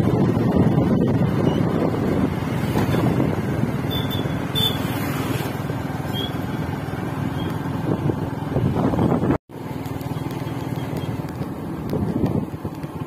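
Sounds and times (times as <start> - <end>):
wind rumble: 0.0 - 9.4
road noise: 0.0 - 13.0
vehicle engine running: 0.0 - 13.0.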